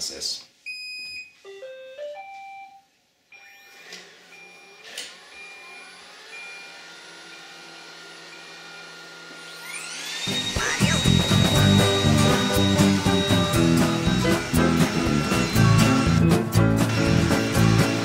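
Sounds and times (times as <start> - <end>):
robot vacuum motors humming: 3.6 - 16.2
rising start-up tune: 3.7 - 18.0.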